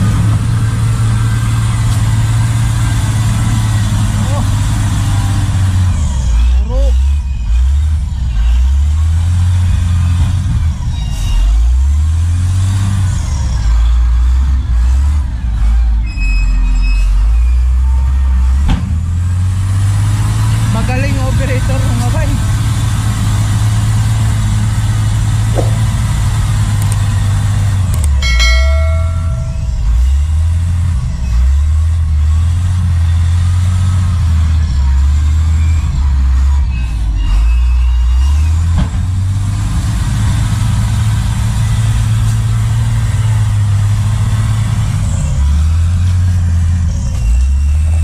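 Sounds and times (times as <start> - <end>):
truck engine rumbling: 0.0 - 48.0
steady high tone: 28.2 - 30.3.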